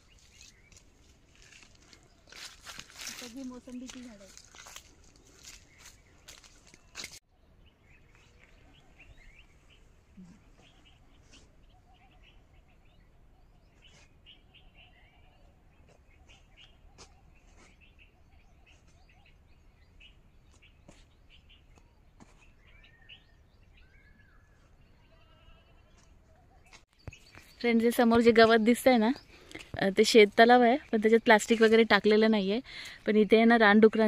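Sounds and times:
faint bird chirps: 5.5s - 28.2s.

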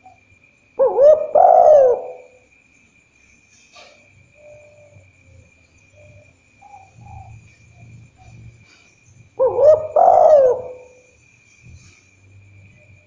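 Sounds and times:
dove cooing: 0.8s - 2.4s, 6.0s - 11.1s.

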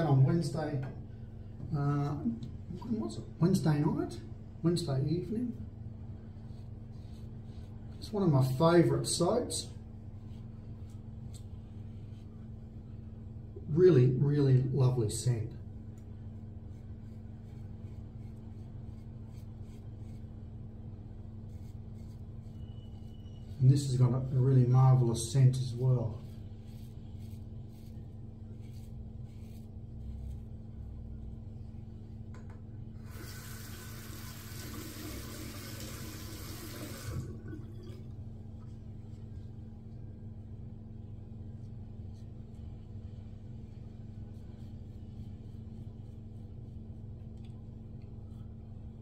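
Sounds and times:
steady low hum: 0.0s - 35.5s, 36.2s - 49.0s
tap water running into sink: 33.1s - 38.0s.

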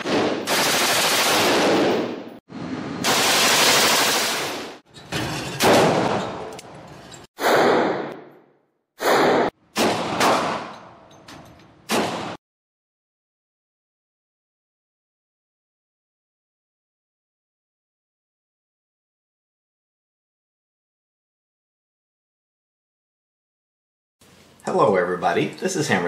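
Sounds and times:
rapid gunfire bursts: 0.0s - 2.1s, 3.0s - 4.8s.

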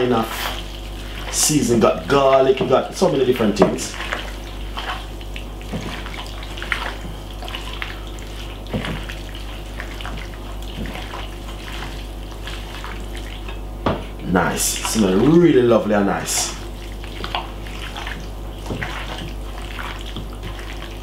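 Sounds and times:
wet squelching of marinated meat: 0.0s - 21.0s.

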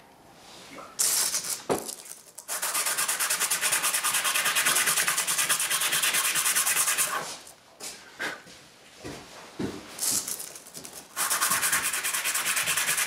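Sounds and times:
metal part scrubbing on sandpaper: 2.4s - 7.3s, 11.1s - 13.0s.

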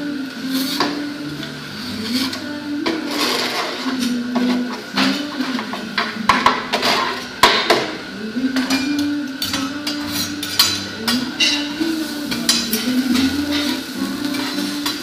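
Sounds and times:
metal spatulas clacking on griddle: 8.6s - 11.7s, 12.3s - 13.8s.

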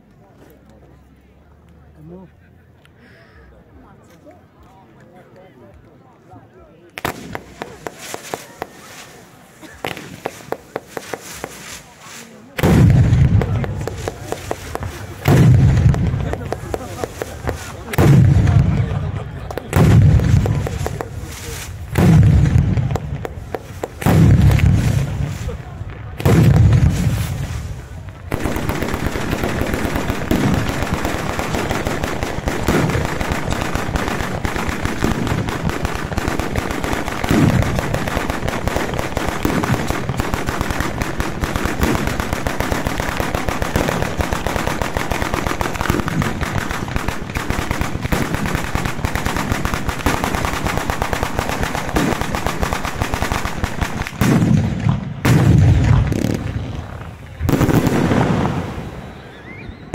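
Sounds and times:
rapid firecracker cracks: 6.8s - 59.2s
heavy firework bang: 12.6s - 19.0s, 19.7s - 45.0s, 53.8s - 59.0s.

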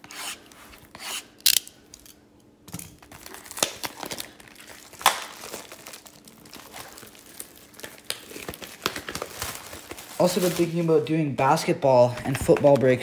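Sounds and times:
plastic wrap snapping: 2.7s - 11.1s
plastic wrap crinkling and tearing: 2.9s - 11.2s.

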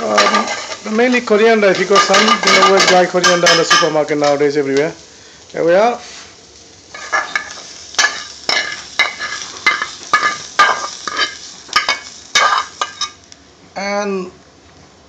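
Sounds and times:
metal spoon scraping frying pan: 0.0s - 0.9s, 1.7s - 4.0s, 6.9s - 13.2s.

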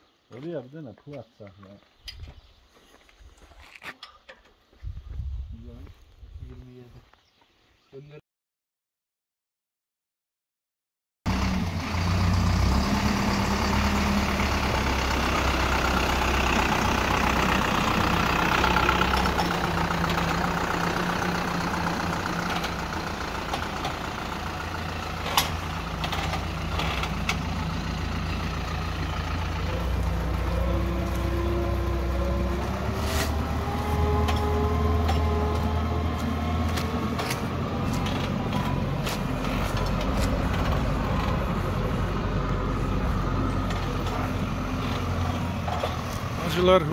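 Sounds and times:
diesel tractor engine running: 11.3s - 46.9s.

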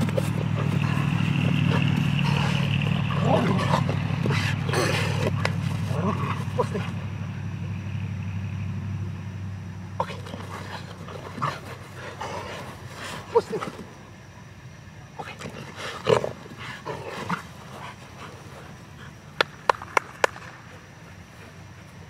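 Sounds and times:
dog vocalizing: 0.0s - 6.9s.

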